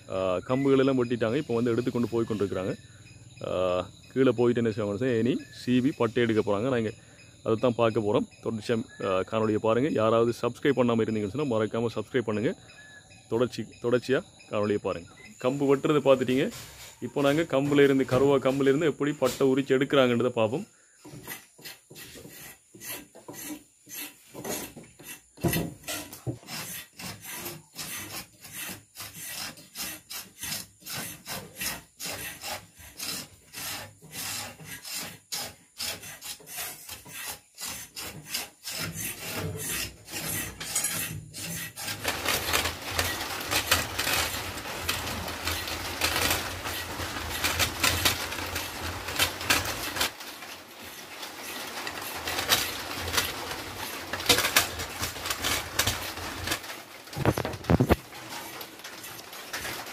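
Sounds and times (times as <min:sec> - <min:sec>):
knife scraping bark: 0:21.0 - 0:45.7.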